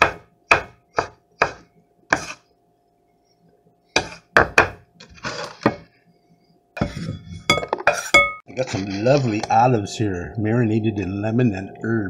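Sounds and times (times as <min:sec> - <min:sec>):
knife chopping on wooden board: 0:00.0 - 0:02.4, 0:04.0 - 0:04.8.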